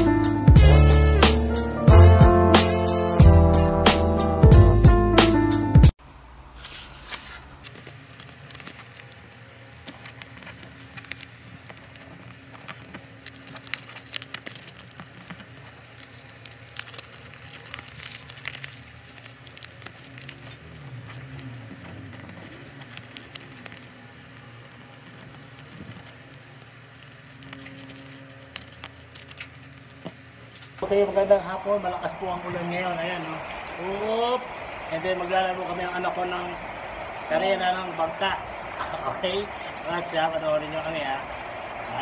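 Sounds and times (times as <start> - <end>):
paper crinkling and rustling: 6.6 - 30.8.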